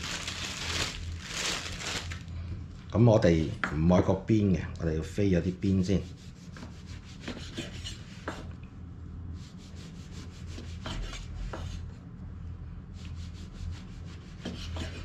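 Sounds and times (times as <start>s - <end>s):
knife sawing through bread: 6.0s - 8.3s, 9.5s - 11.4s, 13.2s - 15.0s.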